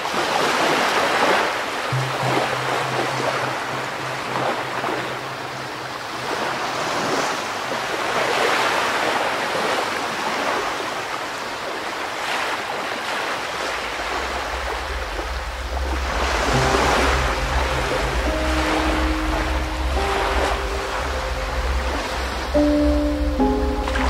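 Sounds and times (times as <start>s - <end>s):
ocean surf washing in: 0.0s - 24.0s
low bass note: 1.9s - 6.3s, 14.0s - 24.0s
soft calm background music: 1.9s - 8.8s, 13.8s - 24.0s.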